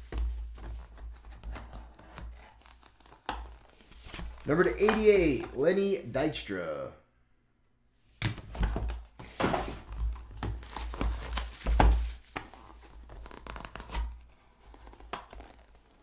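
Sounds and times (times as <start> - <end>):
plastic wrap tearing and crinkling: 9.9 - 16.0.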